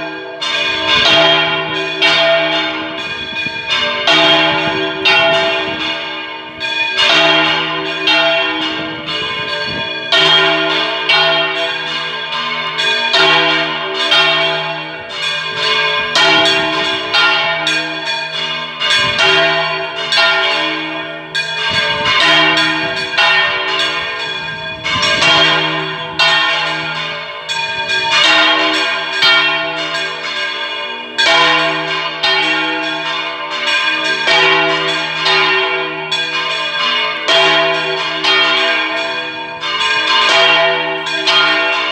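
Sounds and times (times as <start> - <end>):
church bells swinging and ringing: 0.0 - 41.9.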